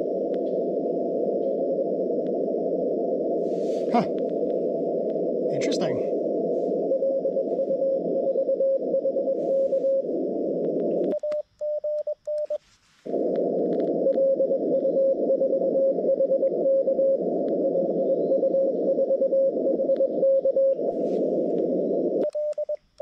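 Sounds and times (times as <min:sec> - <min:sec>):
radio band hiss: 0:00.0 - 0:11.2, 0:12.5 - 0:22.2
morse code tone: 0:03.6 - 0:10.3, 0:13.9 - 0:22.8.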